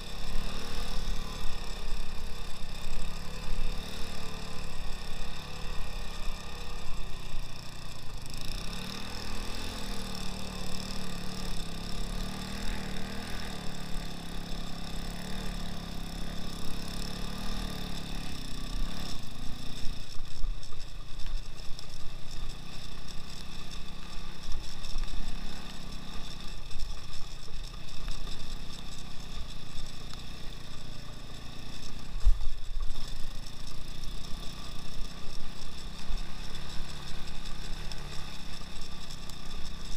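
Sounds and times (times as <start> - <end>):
motorcycle engine running: 0.0 - 39.9.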